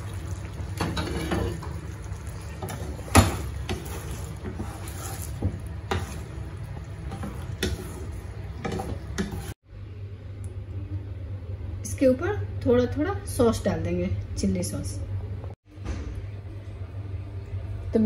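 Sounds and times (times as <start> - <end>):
spatula stirring in a frying pan: 0.4 - 9.6.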